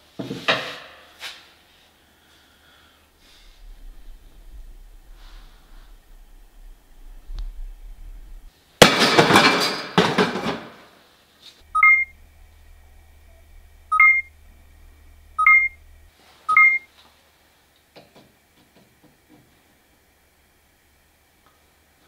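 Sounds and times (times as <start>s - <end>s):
loud rushing clattering noise: 3.2s - 10.7s
two-tone electronic beeps: 11.7s - 12.2s, 13.3s - 14.4s, 15.4s - 16.8s.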